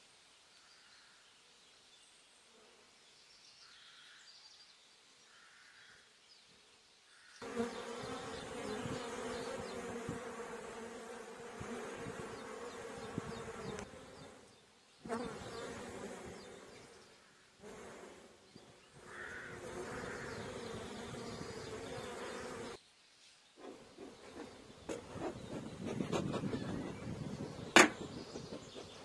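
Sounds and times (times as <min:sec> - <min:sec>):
honeybees buzzing: 0:07.4 - 0:22.8, 0:23.6 - 0:29.0.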